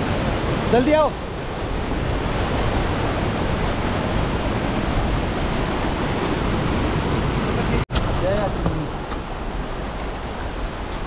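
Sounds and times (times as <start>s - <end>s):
stream rushing over boulders: 0.0s - 11.0s.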